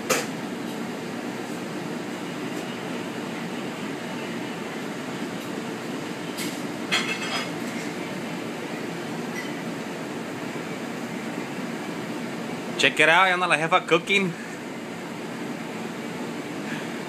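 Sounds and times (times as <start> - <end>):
kitchen ventilation hum: 0.0 - 17.0
metal utensils clattering on plate: 6.9 - 7.6.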